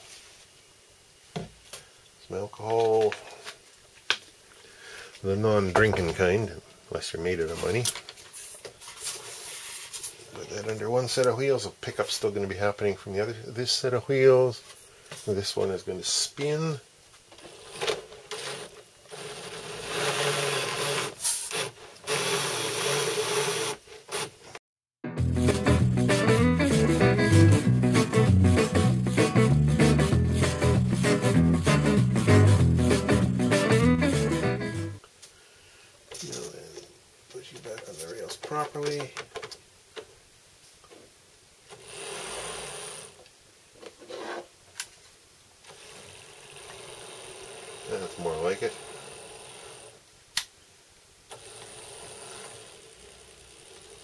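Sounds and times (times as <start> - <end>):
small electric motor whirring: 18.3 - 24.4, 51.3 - 54.0.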